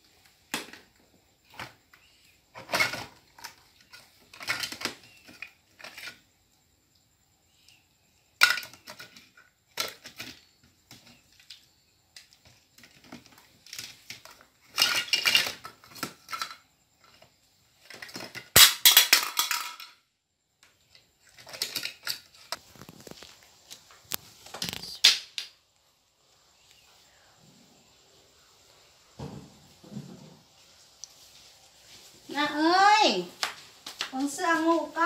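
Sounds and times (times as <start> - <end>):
plastic toys rattling in basket: 2.6 - 6.2, 12.8 - 16.6, 21.2 - 23.2.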